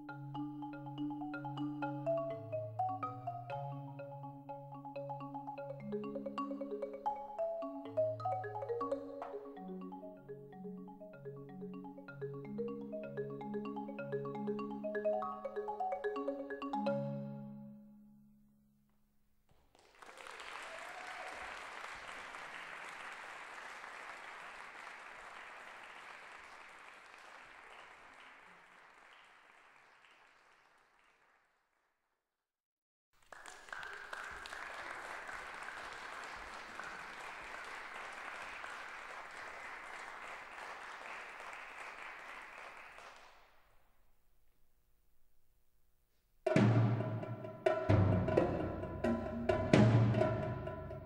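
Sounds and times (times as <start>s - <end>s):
audience applauding: 19.7s - 31.6s, 33.2s - 43.6s.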